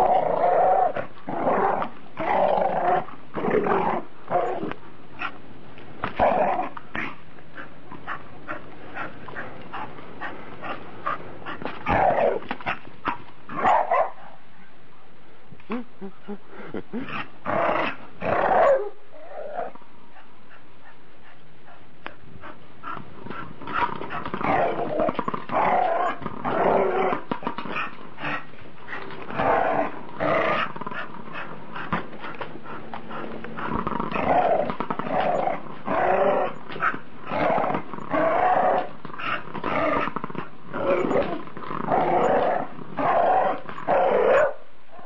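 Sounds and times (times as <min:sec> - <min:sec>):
dogs growling: 0:00.0 - 0:05.4, 0:06.0 - 0:13.7, 0:15.7 - 0:45.0.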